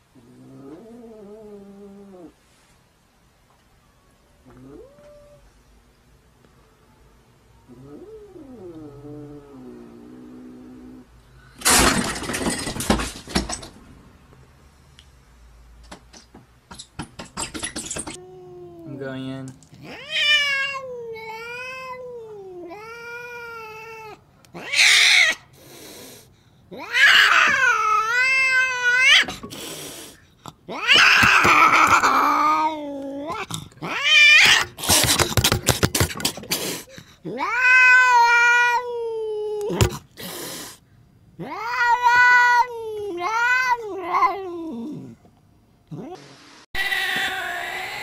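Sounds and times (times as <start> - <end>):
angry cat yowling: 19.8 - 25.5, 26.7 - 29.3, 30.7 - 35.0, 37.2 - 40.0, 41.4 - 45.2, 46.8 - 48.0
cat hissing: 22.6 - 38.9, 39.6 - 45.2, 45.9 - 48.0
cat spitting: 33.3 - 37.1.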